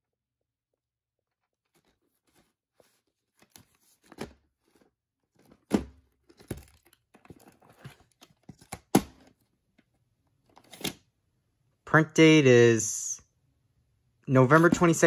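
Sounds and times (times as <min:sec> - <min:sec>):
plastic case rustling and crinkling: 0:01.4 - 0:11.0.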